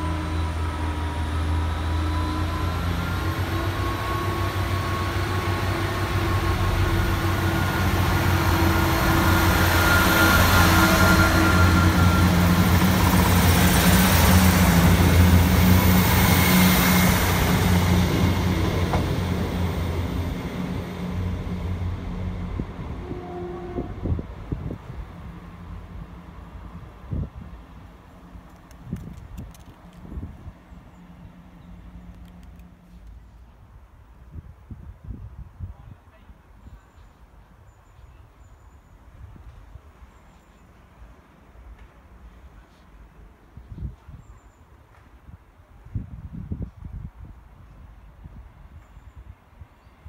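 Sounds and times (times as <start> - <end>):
diesel train engines running: 0.0 - 34.0.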